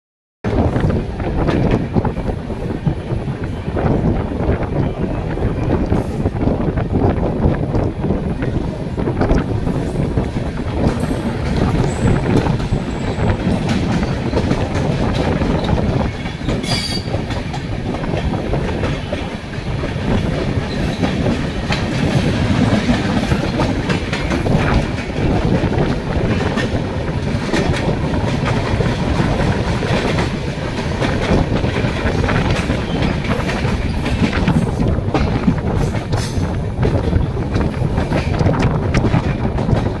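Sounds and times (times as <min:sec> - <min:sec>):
train wheel rumble: 0:00.4 - 0:40.0
rail-joint clickety-clack: 0:00.5 - 0:40.0
train coaches rushing past: 0:00.5 - 0:40.0.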